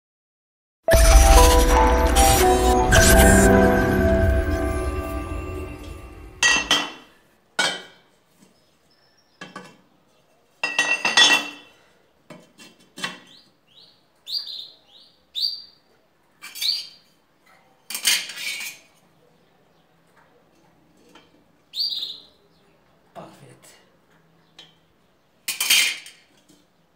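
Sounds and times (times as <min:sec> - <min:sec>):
small bird chirping: 0:13.3 - 0:15.8, 0:21.7 - 0:22.5.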